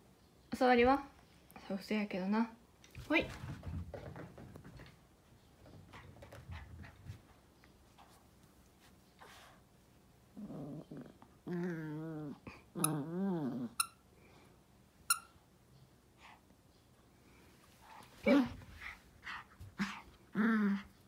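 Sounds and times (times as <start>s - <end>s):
dog play growling: 10.2s - 13.9s, 18.3s - 21.0s.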